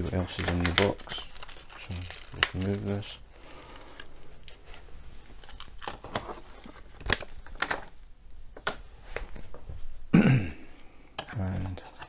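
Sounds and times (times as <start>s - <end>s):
plastic packaging crinkling: 0.0s - 8.1s.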